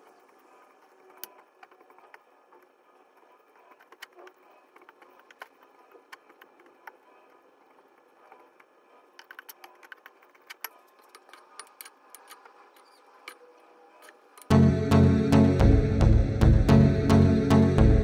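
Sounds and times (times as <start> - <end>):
loud background music: 14.5 - 18.0.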